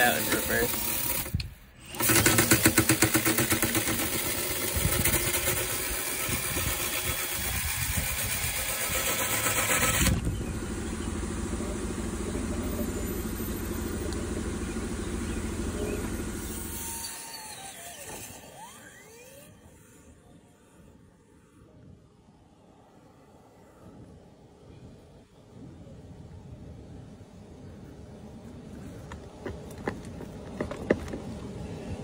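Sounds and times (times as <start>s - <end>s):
rotary brush machine whirring: 0.0s - 21.7s
low machine hum: 3.7s - 32.0s.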